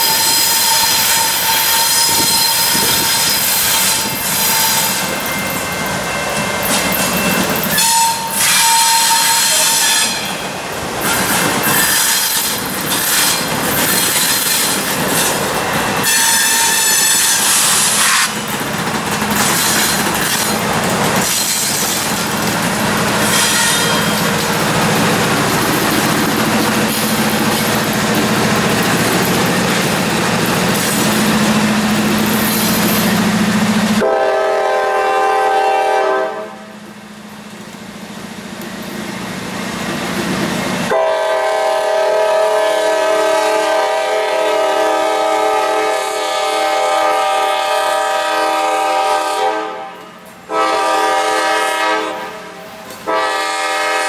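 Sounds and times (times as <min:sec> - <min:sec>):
train horn blasts: 0:00.0 - 0:05.2, 0:07.7 - 0:10.4, 0:16.0 - 0:18.4, 0:23.2 - 0:24.3, 0:34.0 - 0:36.8, 0:40.9 - 0:54.0
train cars ringing squeal: 0:00.0 - 0:18.6, 0:19.3 - 0:29.8, 0:30.6 - 0:34.0
diesel locomotive engine drone: 0:00.0 - 0:54.0.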